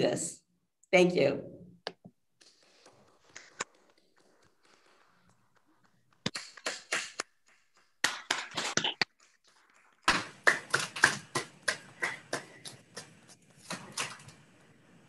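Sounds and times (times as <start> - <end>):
people clapping: 6.3 - 9.1, 10.0 - 14.2.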